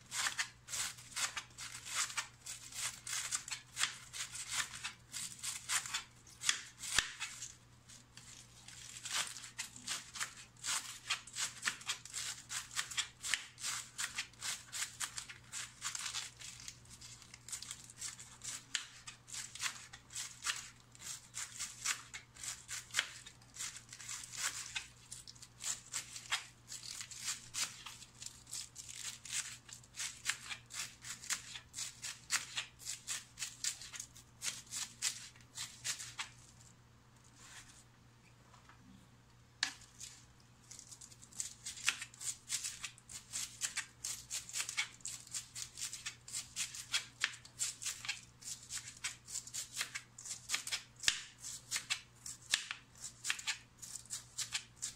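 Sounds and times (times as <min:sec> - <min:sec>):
knife slicing cabbage: 0:00.0 - 0:36.4, 0:39.6 - 0:54.9.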